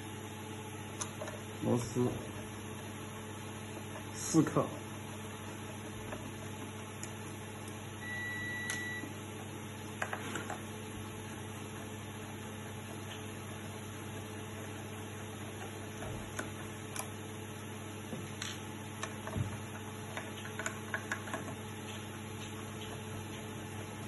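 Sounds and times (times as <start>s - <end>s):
steady electrical hum: 0.0s - 24.0s
high beep: 8.0s - 9.1s.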